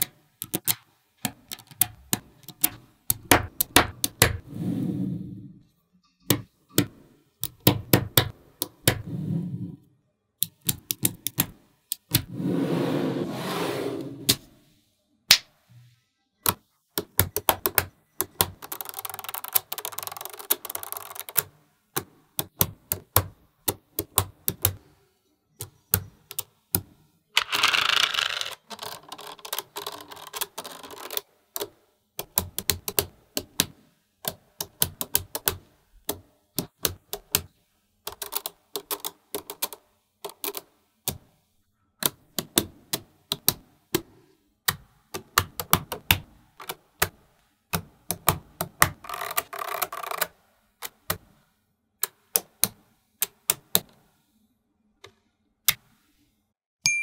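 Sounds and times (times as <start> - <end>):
magnetic balls clicking together: 0.0 - 4.4, 16.4 - 24.8, 25.6 - 37.5.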